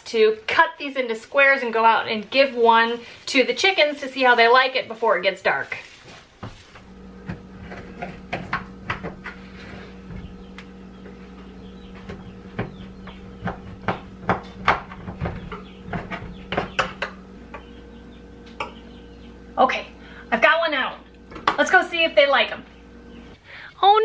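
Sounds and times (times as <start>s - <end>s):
steady low hum: 5.8s - 24.0s.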